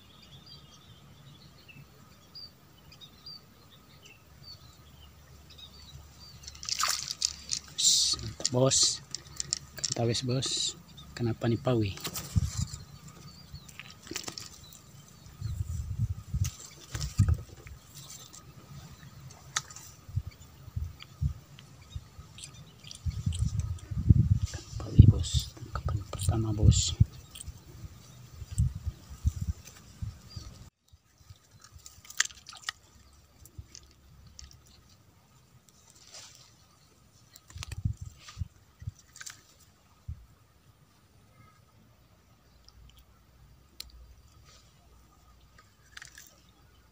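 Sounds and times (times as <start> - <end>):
fishing line handling clicks: 6.4 - 10.7
low thumps and rustles: 11.9 - 21.4.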